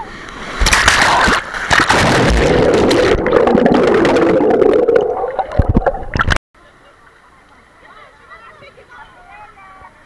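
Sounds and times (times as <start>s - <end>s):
muffled underwater water rumble: 2.0s - 6.4s.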